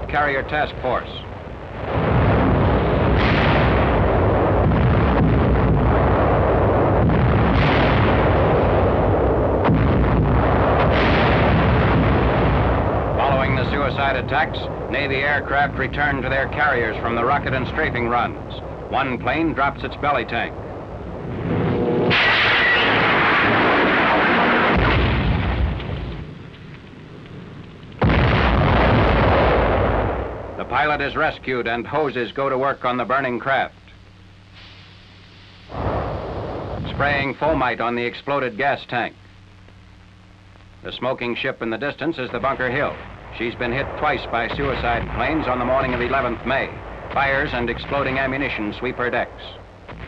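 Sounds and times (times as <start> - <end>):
sharp crack: 0.0 - 31.0, 42.3 - 50.0
gunfire and explosions: 0.0 - 31.7, 35.7 - 37.9, 42.3 - 50.0.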